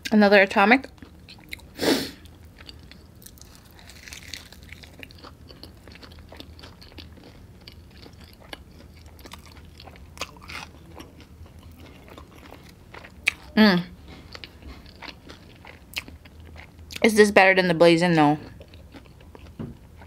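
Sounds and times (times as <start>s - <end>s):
chewing crispy chicken wings: 0.8s - 17.1s, 18.4s - 20.0s.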